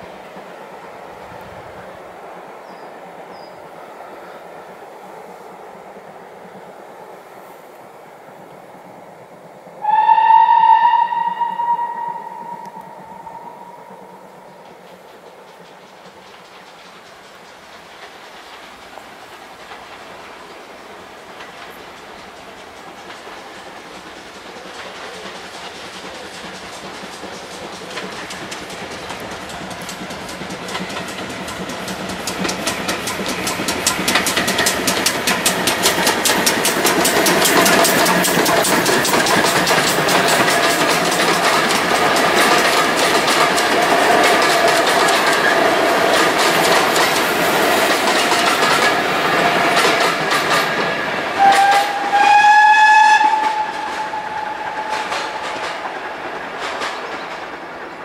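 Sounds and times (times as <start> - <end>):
train wheels clicking over joints: 0.0 - 58.0
steam whistle: 9.8 - 14.5, 51.3 - 55.8.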